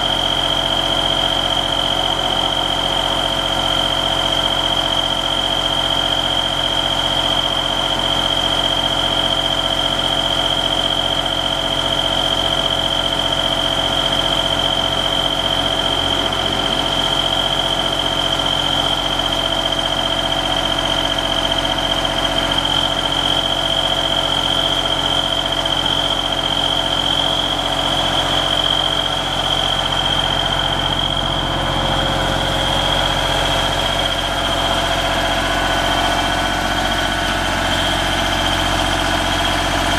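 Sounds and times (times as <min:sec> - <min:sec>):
diesel engine running: 0:00.0 - 0:39.9
high-pitched alarm tone: 0:12.7 - 0:20.0, 0:22.6 - 0:38.2.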